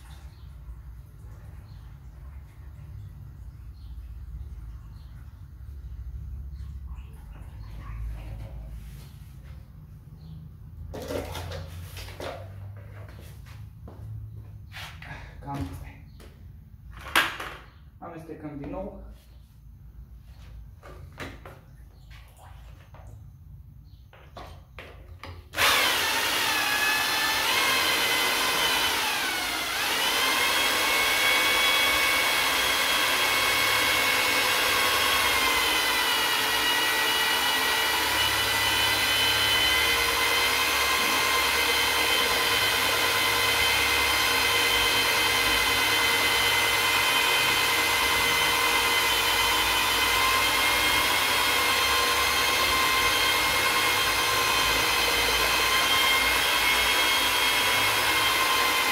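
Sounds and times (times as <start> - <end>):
electric drill mixing paint: 24.1 - 58.9.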